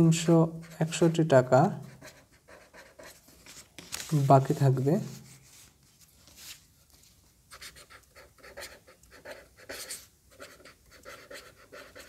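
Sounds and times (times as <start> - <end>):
marker writing on paper: 0.2 - 3.6, 7.5 - 12.0.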